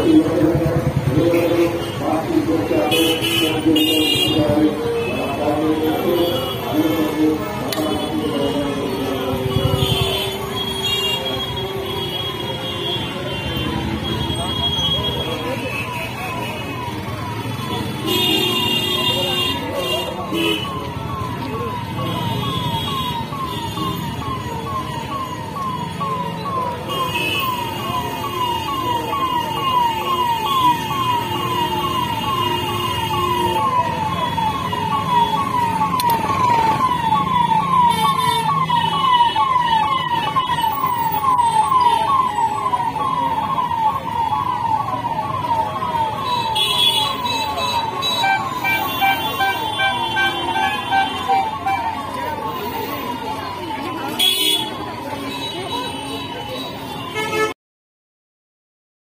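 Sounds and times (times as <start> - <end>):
steady background din: 0.0 - 57.5
siren-like electronic tone: 4.8 - 12.6, 19.2 - 54.2.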